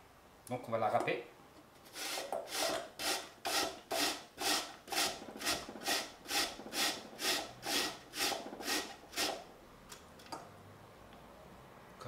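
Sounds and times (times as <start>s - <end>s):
potato grating on metal grater: 1.9s - 9.4s.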